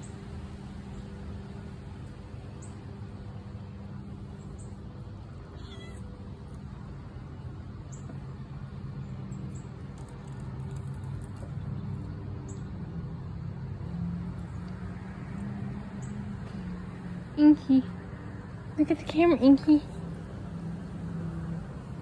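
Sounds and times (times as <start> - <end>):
cat meowing: 5.5 - 6.1.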